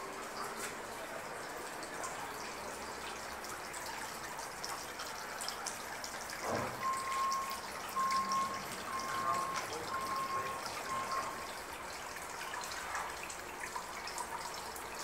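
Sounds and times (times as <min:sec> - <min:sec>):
water trickling into a pond: 0:00.0 - 0:15.0
thin high steady tone: 0:06.8 - 0:11.5.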